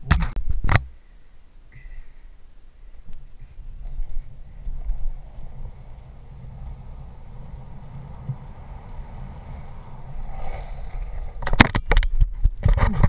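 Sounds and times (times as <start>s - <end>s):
longboard wheels rolling on concrete: 3.2s - 13.0s.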